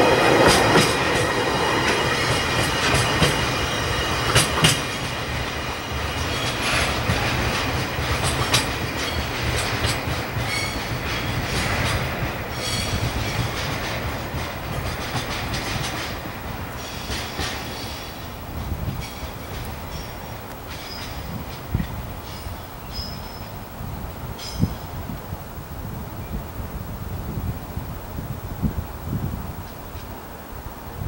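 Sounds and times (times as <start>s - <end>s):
train wheel squeal: 0.0s - 14.0s, 15.0s - 23.6s, 24.4s - 24.9s
train wheels clicking over rail joints: 0.0s - 23.6s.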